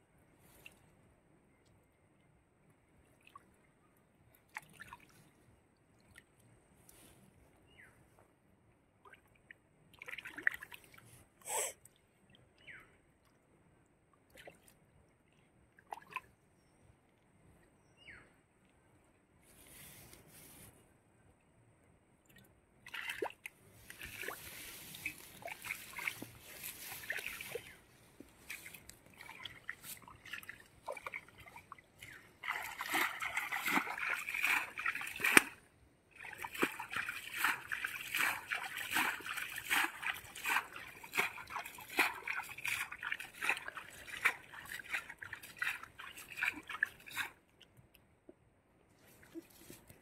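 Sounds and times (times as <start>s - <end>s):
pond water sloshing and splashing: 3.0s - 7.2s, 8.9s - 16.5s, 22.2s - 48.2s, 48.9s - 50.0s.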